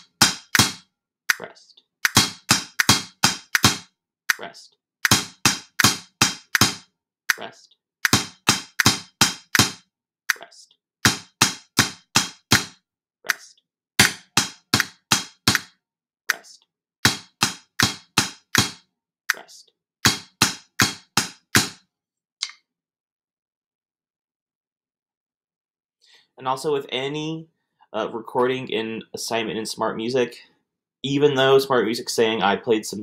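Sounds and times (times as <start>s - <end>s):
snare drum strokes: 0.0s - 1.4s, 2.0s - 3.8s, 5.0s - 7.4s, 8.0s - 10.4s, 11.0s - 15.7s, 16.3s - 19.4s, 20.0s - 21.8s.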